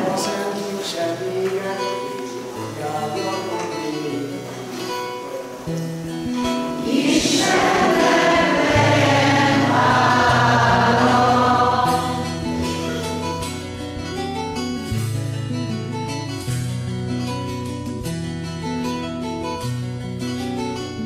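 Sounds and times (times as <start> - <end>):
group singing a hymn: 0.0 - 1.0, 6.7 - 13.6
held instrumental chords: 4.6 - 20.8.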